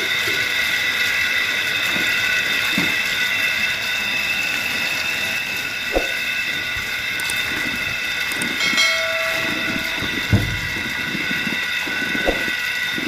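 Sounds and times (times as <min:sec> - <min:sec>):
steady high whine: 0:00.0 - 0:13.0
hand pump knocking: 0:08.4 - 0:11.0.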